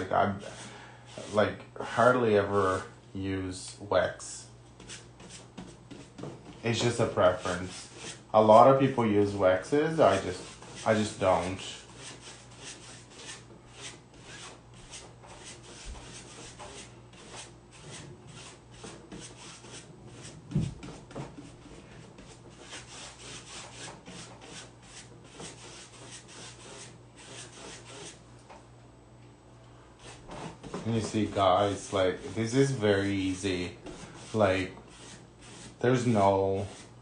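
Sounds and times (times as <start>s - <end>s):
tool rubbing over tissue paper: 4.8s - 8.2s, 9.8s - 28.2s, 30.0s - 37.0s.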